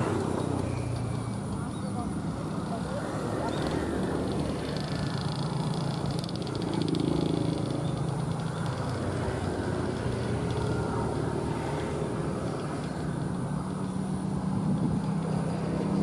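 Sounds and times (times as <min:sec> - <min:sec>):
small scooter engine running: 0:00.0 - 0:16.0
fast rattle: 0:03.5 - 0:11.4.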